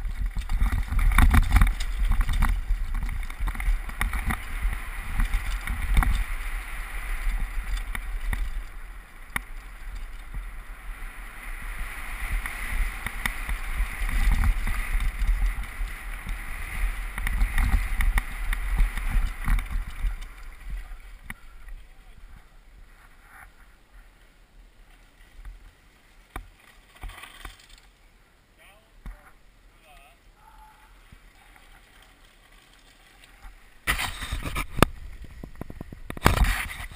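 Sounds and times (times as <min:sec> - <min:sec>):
bike rattling over bumps: 0:00.0 - 0:22.4, 0:31.8 - 0:36.9
tyres on loose dirt: 0:00.0 - 0:23.9, 0:24.8 - 0:28.1, 0:30.4 - 0:36.9
wind rumble: 0:33.8 - 0:36.9
camera being handled: 0:33.9 - 0:36.9.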